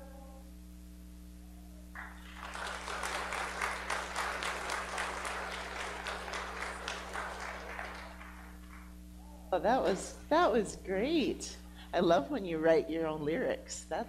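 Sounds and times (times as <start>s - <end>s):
congregation applauding: 2.0s - 9.0s.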